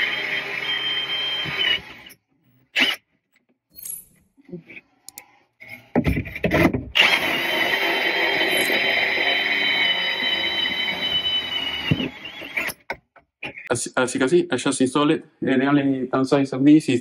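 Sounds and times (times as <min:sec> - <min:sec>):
cordless drill driving screws: 0:07.0 - 0:12.8.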